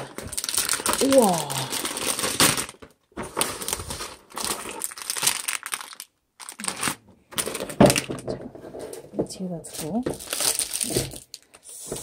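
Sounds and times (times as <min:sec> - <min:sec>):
plastic bags crinkling: 0:00.0 - 0:08.4, 0:09.6 - 0:11.7.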